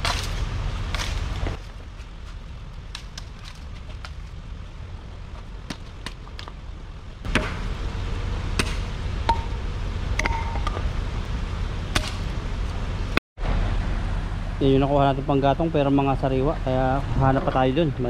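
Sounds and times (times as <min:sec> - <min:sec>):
branches cracking: 0:00.0 - 0:06.6
low rumble: 0:00.0 - 0:18.0.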